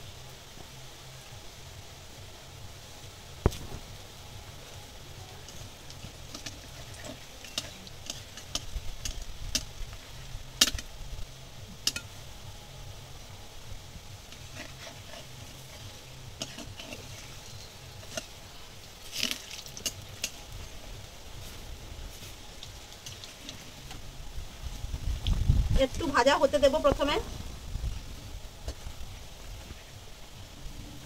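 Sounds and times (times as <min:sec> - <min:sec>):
fritters sizzling in hot oil: 0:00.0 - 0:31.0
spatula scraping metal pan: 0:05.5 - 0:09.7, 0:14.3 - 0:18.4.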